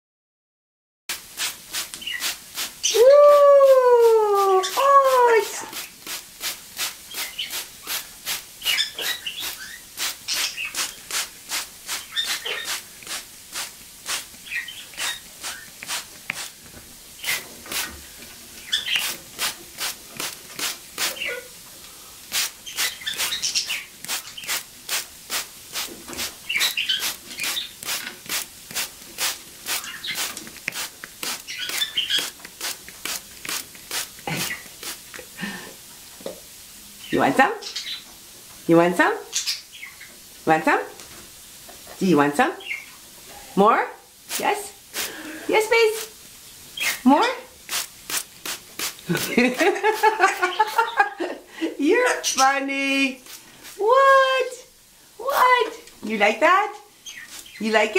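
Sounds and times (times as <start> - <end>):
water mister hissing pulses: 1.1 - 37.5, 39.7 - 56.4
parrot chirping: 7.1 - 8.0, 8.6 - 11.2, 11.9 - 12.9, 14.1 - 15.8, 18.6 - 20.0, 20.6 - 21.6, 22.3 - 24.7, 26.4 - 28.1, 29.6 - 30.4, 31.2 - 32.4, 46.8 - 47.5, 57.0 - 57.7.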